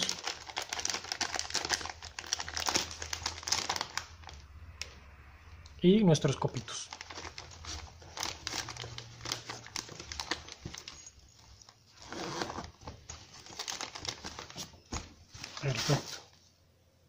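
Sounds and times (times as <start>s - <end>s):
packet crinkling: 0.0s - 4.5s, 6.4s - 11.8s, 12.5s - 14.8s
fabric pouch rustling: 7.0s - 16.3s.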